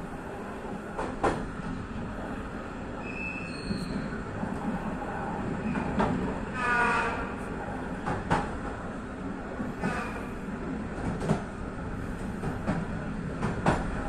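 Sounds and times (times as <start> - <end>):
train wheels rumbling: 0.0 - 14.0
wheel squeals: 3.0 - 4.1.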